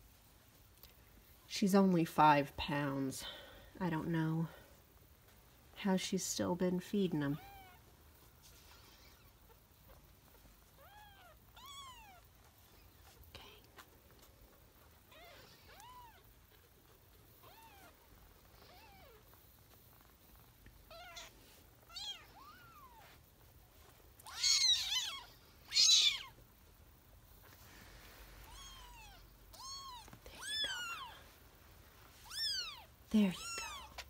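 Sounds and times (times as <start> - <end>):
kittens mewing: 24.2 - 26.4, 28.4 - 31.2, 32.2 - 34.0.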